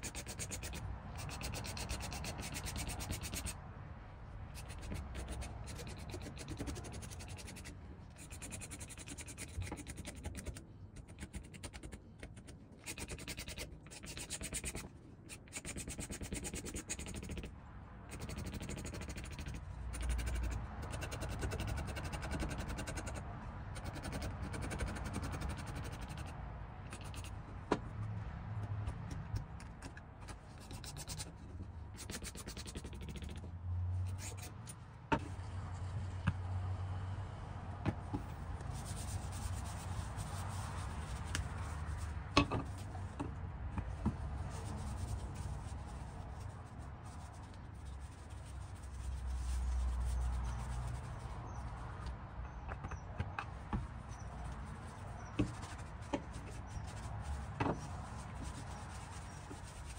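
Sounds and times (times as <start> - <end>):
sandpaper rubbing wood: 0.0 - 3.6, 4.5 - 12.0, 12.8 - 17.5, 18.1 - 27.4, 32.0 - 33.4, 38.6 - 42.9, 44.3 - 51.8, 54.3 - 59.9.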